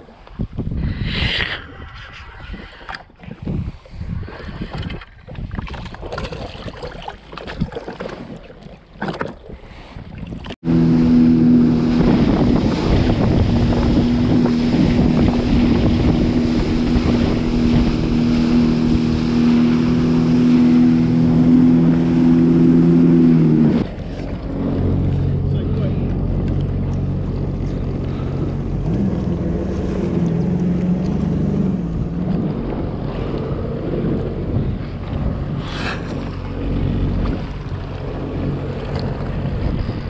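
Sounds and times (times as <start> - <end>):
wind on microphone: 0.0 - 7.8, 9.5 - 40.0
gusty water noise: 0.0 - 40.0
jet ski engine hum: 8.7 - 40.0
water rushing and spray: 10.6 - 40.0.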